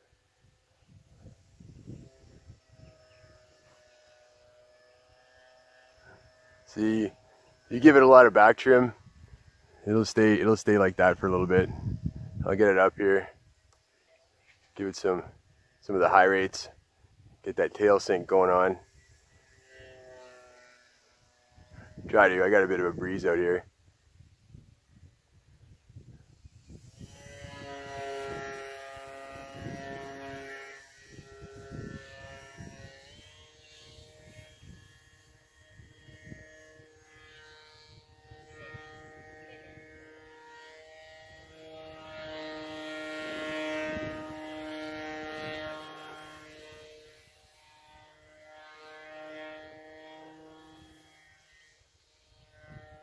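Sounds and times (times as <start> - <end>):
model plane motor buzzing: 0.0 - 53.0
wind rumble on microphone: 0.4 - 3.4, 8.9 - 13.6, 21.6 - 40.2, 41.0 - 47.3, 52.4 - 53.0.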